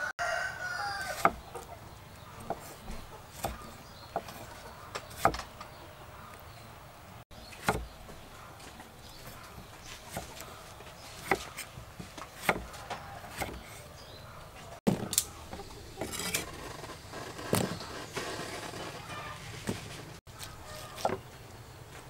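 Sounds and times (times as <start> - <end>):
clatter and rustling: 16.0 - 20.3.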